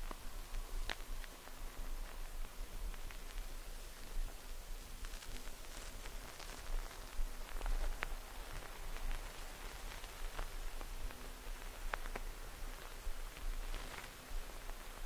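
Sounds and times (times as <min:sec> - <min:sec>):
steady hiss with crackles: 0:00.0 - 0:15.0.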